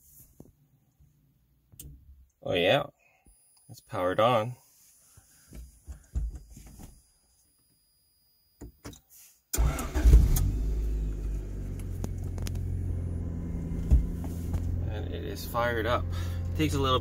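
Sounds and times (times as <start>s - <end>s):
car engine starting and idling: 9.5s - 17.0s.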